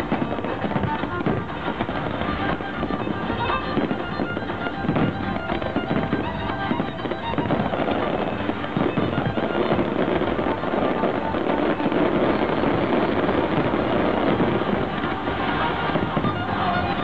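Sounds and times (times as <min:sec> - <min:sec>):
fireworks bursting and crackling: 0:00.0 - 0:17.0
music playing: 0:00.0 - 0:17.0.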